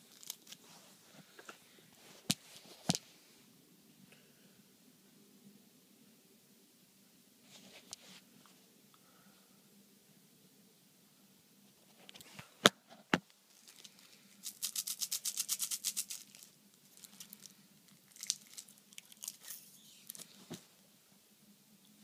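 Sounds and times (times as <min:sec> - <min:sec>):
soft clicks and crinkles: 0:11.8 - 0:14.2.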